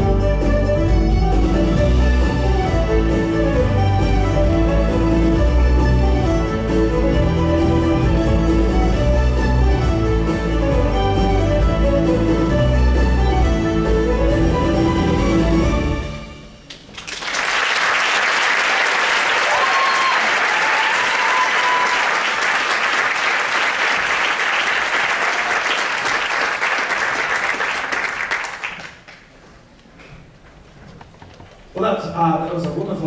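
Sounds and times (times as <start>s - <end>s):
audience applauding: 16.7s - 29.3s.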